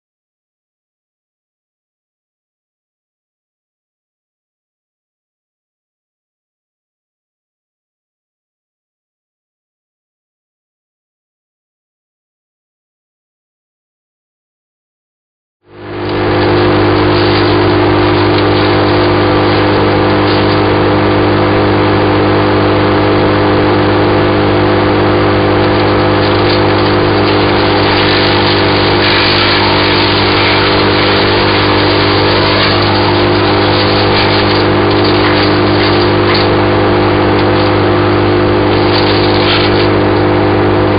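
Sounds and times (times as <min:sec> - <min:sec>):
branches crackling in chipper: 0:15.8 - 0:40.5
wood chipper engine running: 0:15.8 - 0:40.9.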